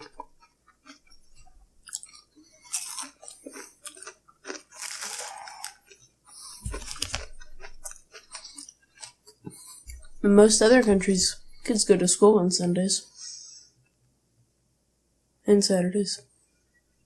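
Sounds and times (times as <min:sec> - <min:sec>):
chewing and crunching sandwich: 0:00.0 - 0:11.8.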